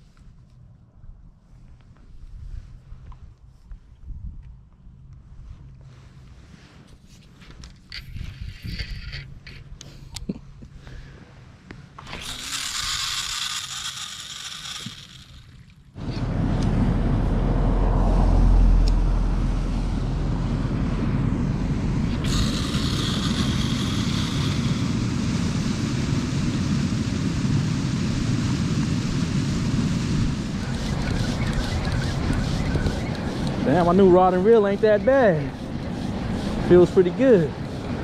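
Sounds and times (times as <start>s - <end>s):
wind buffeting microphone: 2.1s - 4.7s, 8.0s - 9.8s, 16.0s - 38.0s
hissing rustle: 11.2s - 15.7s, 21.9s - 38.0s.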